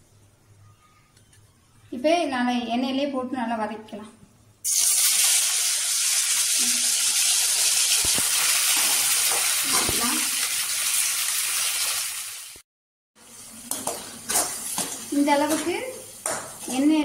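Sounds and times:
tomatoes sizzling in hot oil: 4.6 - 12.6, 13.2 - 17.0.

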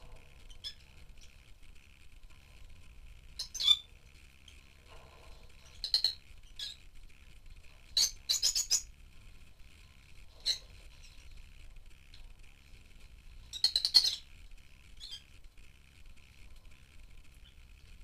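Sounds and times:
lovebirds chirping: 3.4 - 4.7, 5.6 - 6.9, 7.8 - 9.0, 13.4 - 15.4.

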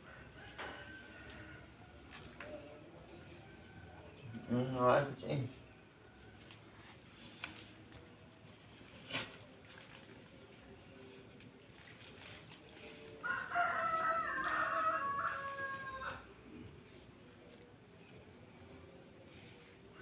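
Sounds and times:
rooster crowing: 0.0 - 2.1, 13.1 - 16.7.

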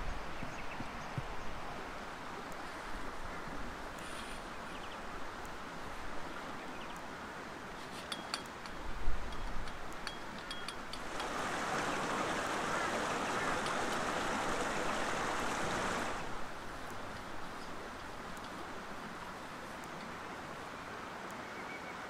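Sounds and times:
creek rushing: 0.2 - 22.0
light metallic clicks: 7.8 - 11.3.

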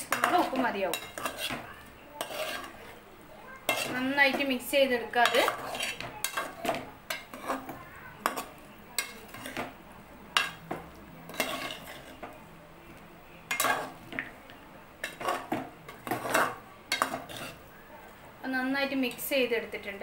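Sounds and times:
spoon scraping metal pot: 0.0 - 3.0, 3.6 - 9.8, 10.4 - 12.4, 13.5 - 14.2, 15.0 - 17.7.

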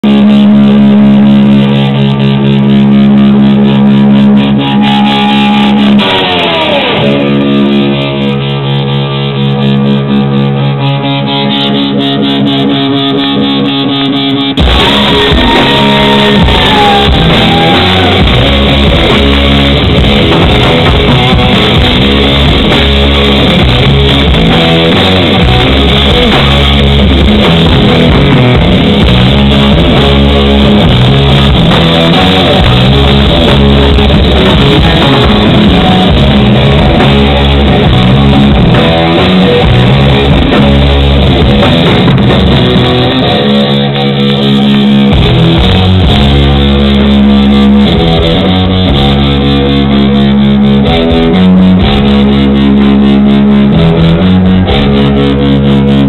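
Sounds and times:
bass guitar: 0.0 - 56.0
drums: 0.0 - 56.0
electric guitar ringing notes: 0.0 - 56.0.

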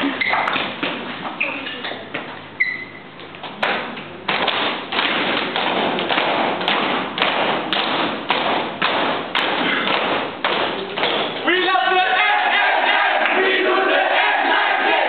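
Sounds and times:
people beating time in unison: 3.6 - 15.0.

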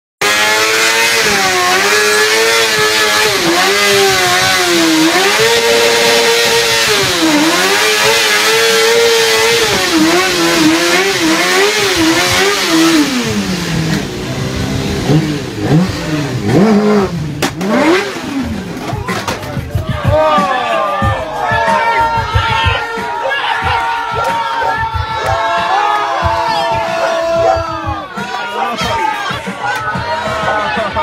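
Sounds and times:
motorcycle engine revving: 0.2 - 19.8.

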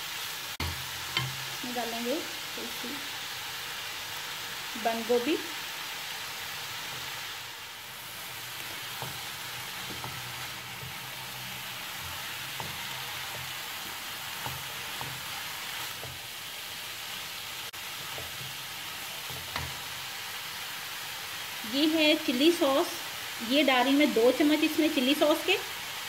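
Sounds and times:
food sizzling in a wok: 0.0 - 26.0
spatula scraping and tapping pan: 0.6 - 1.5, 8.6 - 16.3, 17.9 - 19.9.

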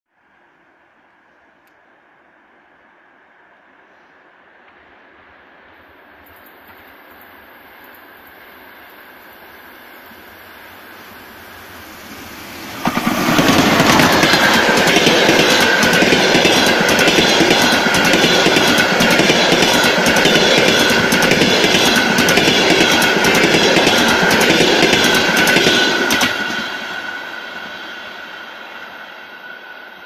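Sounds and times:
electric locomotive passing: 1.2 - 30.0
wheels clacking over rail joints: 12.8 - 26.6.

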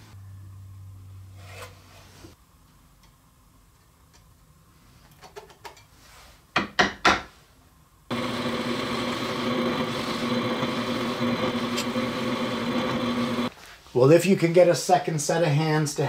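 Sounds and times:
drill press boring plywood: 8.1 - 13.5.

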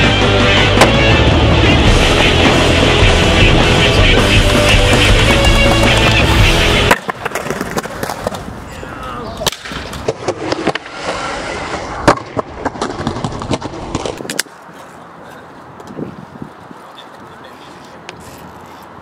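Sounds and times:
loud music: 0.0 - 6.9
skateboard wheels rolling: 2.0 - 19.0
skateboard clacking on ground: 4.6 - 19.0.

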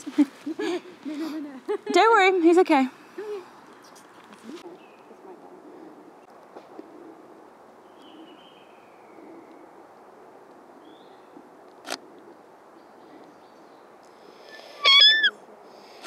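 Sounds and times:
bird chirp: 7.8 - 9.7, 10.8 - 11.4
high-pitched squeak: 14.8 - 15.3.

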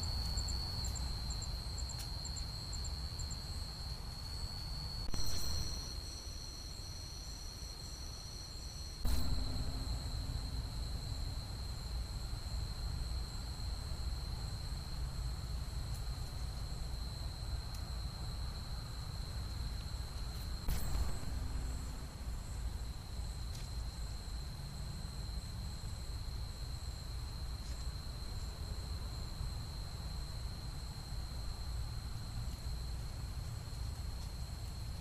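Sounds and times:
low steady rumble: 0.0 - 17.8, 18.5 - 26.5
insects trilling: 0.0 - 33.6
burst of noise: 5.0 - 6.0, 9.0 - 11.9, 20.6 - 23.2.

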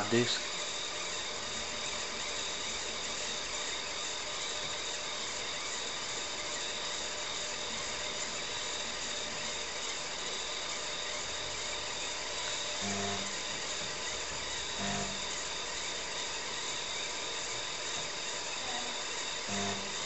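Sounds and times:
steady high whine: 0.0 - 4.7, 5.3 - 20.0
computer fan and disk drives whirring: 0.0 - 20.0.

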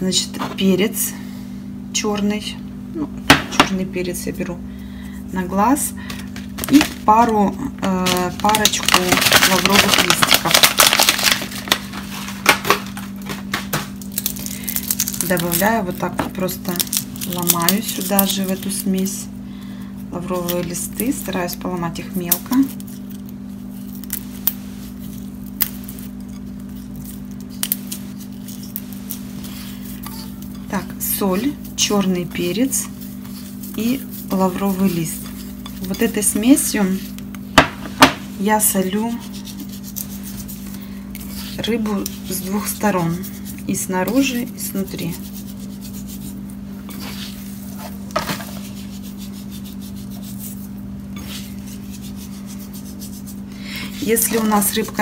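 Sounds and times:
steady low hum: 0.0 - 55.0
dry leaves snapping: 8.1 - 12.0, 13.9 - 18.9, 22.3 - 29.2
hands rubbing salt into fish: 22.8 - 37.1, 38.7 - 54.8.

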